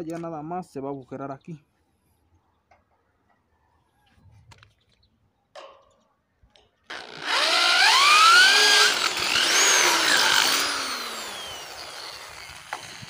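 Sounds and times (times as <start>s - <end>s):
electric drill boring into steel: 6.9s - 13.0s.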